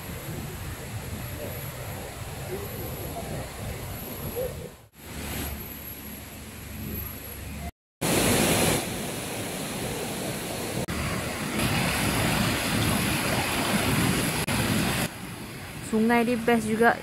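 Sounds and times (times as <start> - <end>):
river rushing over stones: 8.0 - 15.2.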